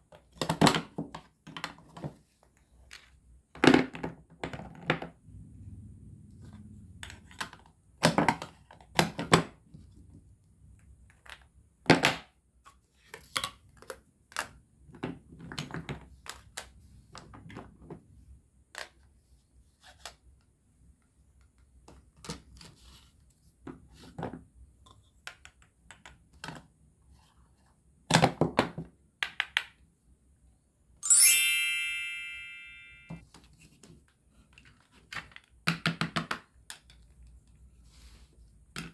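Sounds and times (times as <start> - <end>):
bright ding: 31.0 - 33.2.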